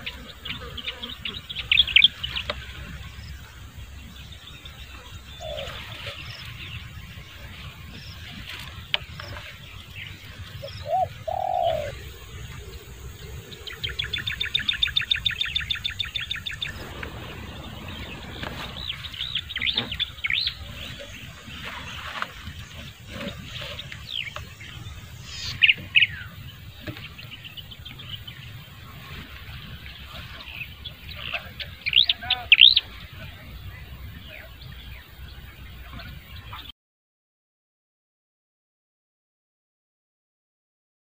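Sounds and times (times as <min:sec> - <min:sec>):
birds chirping: 0:00.0 - 0:36.7
dove cooing: 0:05.4 - 0:06.2, 0:10.6 - 0:14.9.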